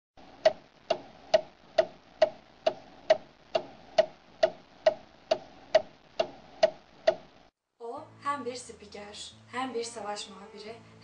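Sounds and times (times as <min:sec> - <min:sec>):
clock ticking: 0:00.3 - 0:07.3.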